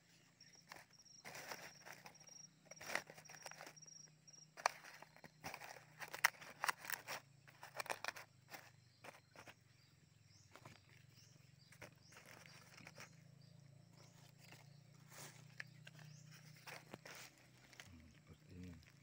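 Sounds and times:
dry leaves crackling and rustling: 14.0 - 19.0.

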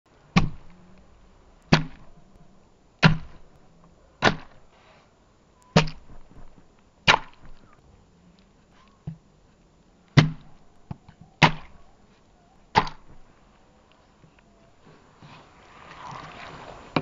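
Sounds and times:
stone smashing plums on board: 0.4 - 0.7, 1.7 - 2.2, 3.0 - 3.5, 4.2 - 4.6, 5.7 - 7.7, 10.2 - 10.6, 11.4 - 11.8, 12.7 - 13.2.

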